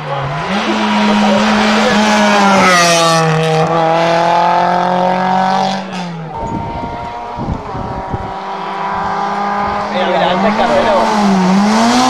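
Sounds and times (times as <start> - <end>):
rally car engine passing at high revs: 0.0 - 12.0.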